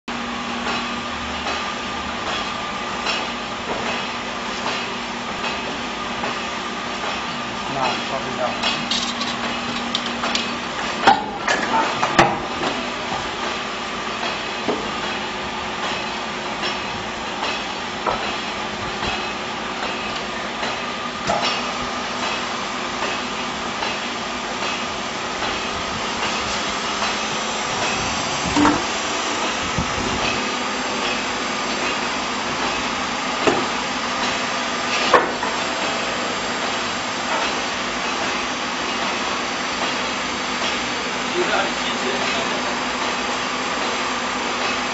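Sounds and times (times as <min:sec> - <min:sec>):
motor and pump humming: 0:00.1 - 0:44.9
metal knocks and clanks: 0:27.8 - 0:30.4.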